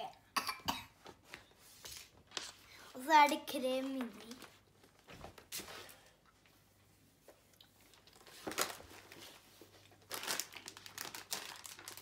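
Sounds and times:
plastic bag crinkling: 0:07.9 - 0:12.0.

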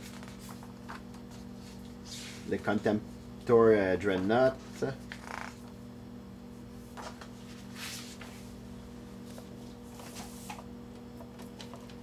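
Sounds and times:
paper pages rustling: 0:00.0 - 0:02.4
steady low hum: 0:00.0 - 0:12.0.

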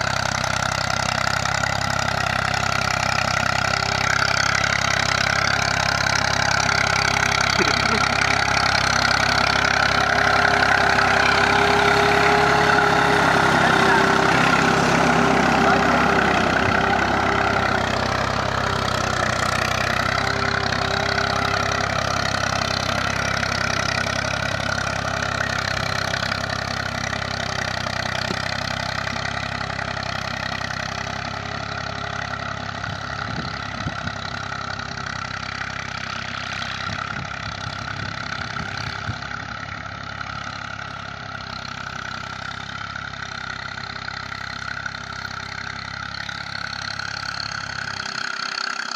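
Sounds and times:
tractor diesel engine under load: 0:00.0 - 0:48.9.

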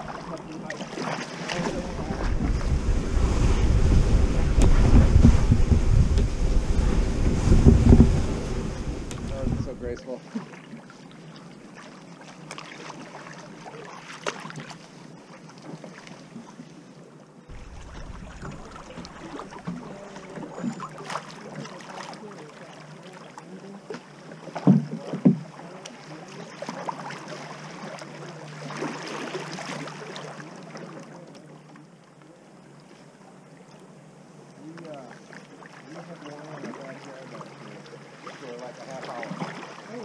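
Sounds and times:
paddles splashing in water: 0:00.0 - 0:16.8, 0:17.5 - 0:32.0, 0:34.6 - 0:40.0
loud knocks: 0:04.6 - 0:06.3, 0:07.2 - 0:08.3.

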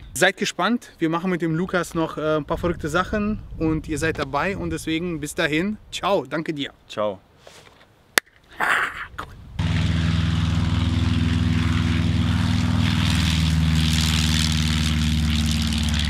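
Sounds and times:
light aircraft engine running: 0:09.6 - 0:16.0.

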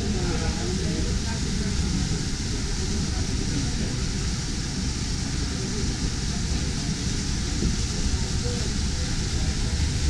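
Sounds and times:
indistinct crowd chatter: 0:00.0 - 0:10.0
steady low rumble: 0:08.0 - 0:10.0.

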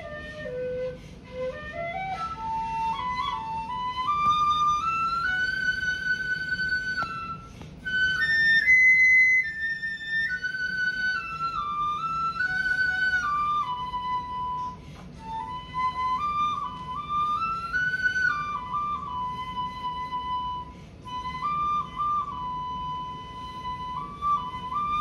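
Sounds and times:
bamboo flute slow melody: 0:00.0 - 0:25.0.

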